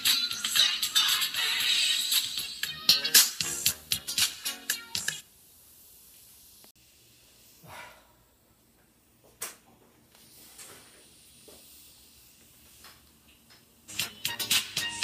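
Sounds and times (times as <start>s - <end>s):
music through bare speaker: 0.0s - 5.2s, 13.9s - 15.0s
faint hiss: 10.1s - 13.2s.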